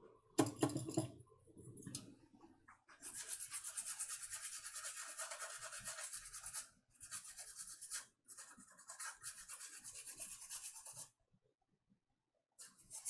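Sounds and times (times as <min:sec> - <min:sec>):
toothbrush scrubbing circuit board: 0:03.0 - 0:11.1, 0:12.6 - 0:13.0.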